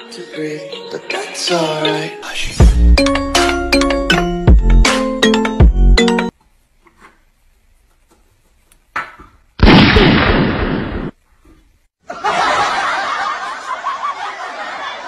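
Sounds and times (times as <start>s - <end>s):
loud gunshot bang: 9.6s - 11.1s
people laughing: 12.1s - 15.0s.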